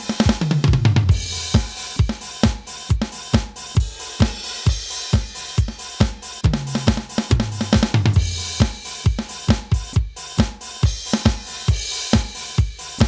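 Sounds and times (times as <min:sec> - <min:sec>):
electronic drum tom fill: 0:00.0 - 0:10.2
drum kit steady beat: 0:00.0 - 0:13.0.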